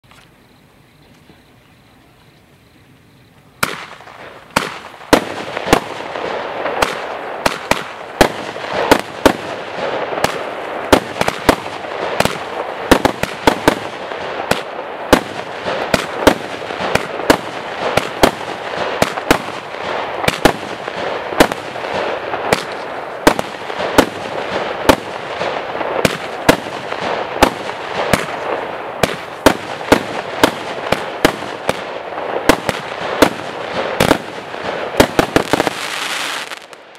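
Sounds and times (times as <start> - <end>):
firework hiss and crackle: 2.0 - 36.9
firework shots popping: 3.6 - 36.9.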